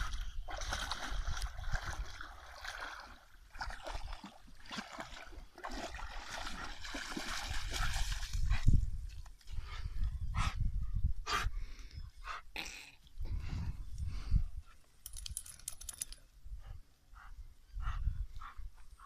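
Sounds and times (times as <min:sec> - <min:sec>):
wind rumbling on microphone: 0:00.0 - 0:02.4, 0:06.5 - 0:12.2, 0:13.2 - 0:14.7, 0:16.4 - 0:19.0
dog splashing through water: 0:00.5 - 0:08.6.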